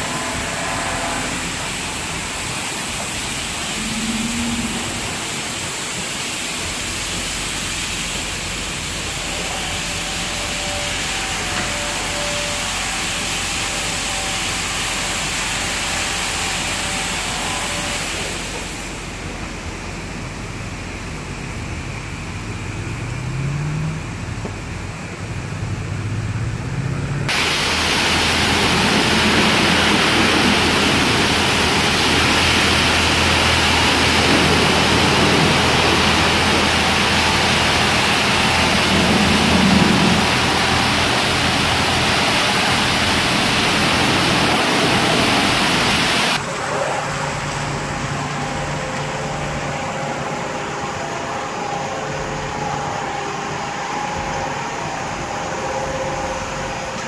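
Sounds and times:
steady machine tones: 0.0s - 7.4s, 27.3s - 57.0s
machine hum: 0.0s - 23.0s, 27.2s - 57.0s
water jets spraying a car: 0.0s - 26.0s, 27.2s - 57.0s.

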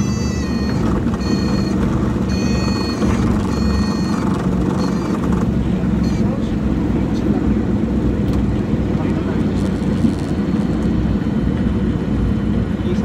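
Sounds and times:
stall warning horn pulses: 0.0s - 5.3s, 6.0s - 6.5s
aircraft engine and propeller drone: 0.0s - 13.0s.

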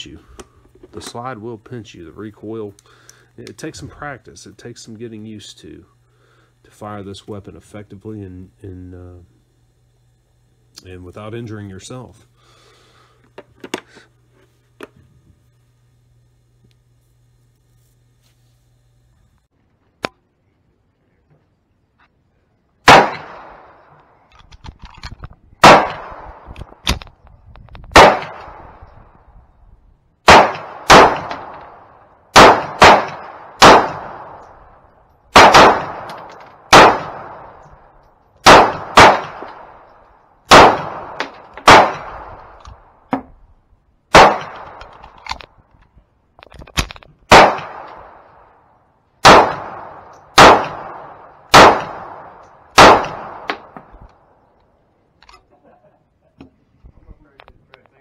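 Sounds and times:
pistol shots with ringing echo: 22.8s - 23.9s, 25.6s - 26.5s, 27.9s - 28.8s, 30.2s - 37.8s, 38.4s - 39.9s, 40.5s - 42.6s, 44.1s - 45.0s, 47.3s - 48.5s, 49.2s - 54.0s.

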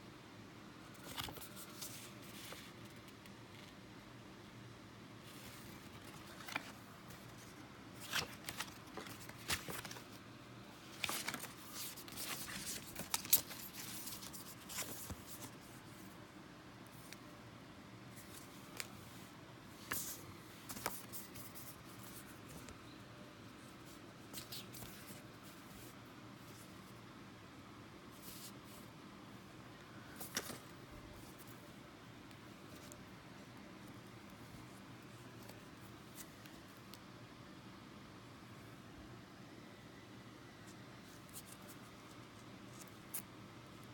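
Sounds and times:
paper and packaging rustling: 5.3s - 10.2s, 10.9s - 15.8s.

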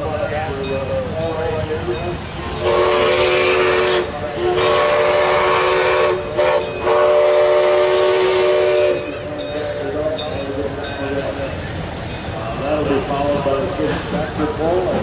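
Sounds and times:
chime steam whistle blasts: 2.6s - 9.3s.

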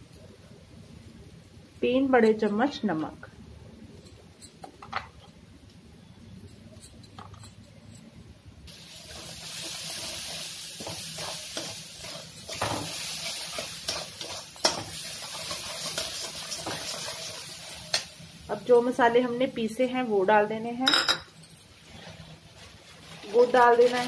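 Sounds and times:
paste sizzling in oil: 8.7s - 18.6s
metal spoon scraping a pan: 9.1s - 18.1s.

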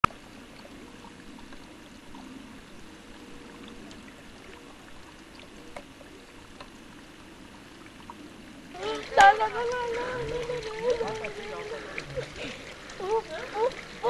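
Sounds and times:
running water: 0.0s - 14.0s
faint clicks: 9.0s - 14.0s.

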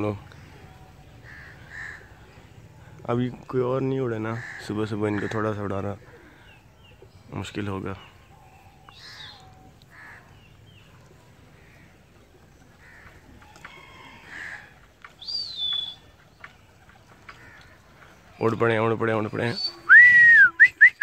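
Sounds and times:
bird calls: 0.0s - 21.0s
crows cawing: 1.1s - 2.5s, 4.2s - 6.4s, 8.8s - 10.5s, 11.5s - 14.9s, 17.0s - 18.2s
rising and falling whistle: 19.9s - 21.0s.

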